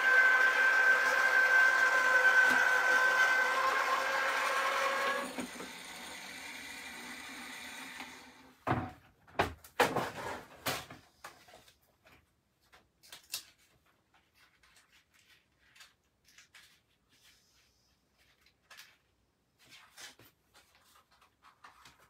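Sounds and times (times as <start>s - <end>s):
small motor hum: 0.0s - 8.5s.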